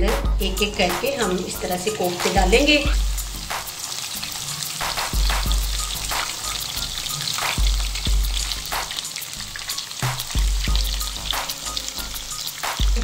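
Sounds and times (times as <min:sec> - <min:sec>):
oil sizzling and crackling: 0:00.4 - 0:13.0.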